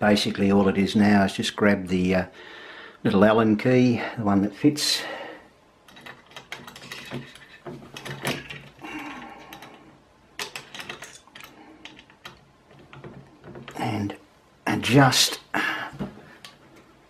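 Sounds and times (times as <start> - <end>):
hex key clicking and scraping: 5.9 - 8.8, 9.4 - 13.8.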